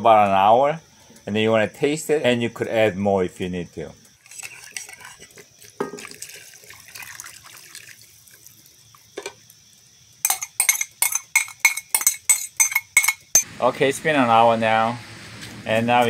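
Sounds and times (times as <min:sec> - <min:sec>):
metal spoon clinking glass jug: 0:04.3 - 0:05.2, 0:10.2 - 0:13.5
liquid pouring into pot: 0:04.3 - 0:09.0.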